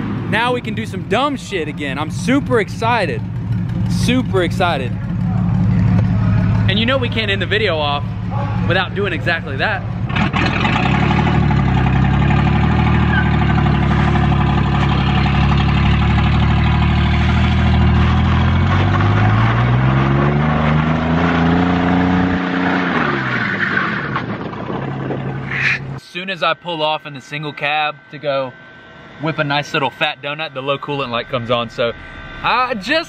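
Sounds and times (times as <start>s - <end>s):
pickup truck engine revving: 0.0s - 26.0s.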